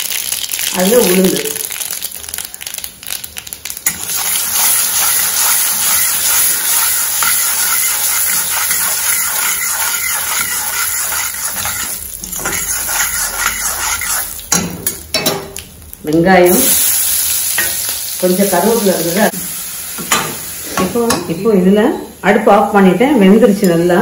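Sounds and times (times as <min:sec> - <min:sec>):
mustard seeds popping: 0:00.0 - 0:07.5
hot oil sizzling: 0:00.0 - 0:24.0.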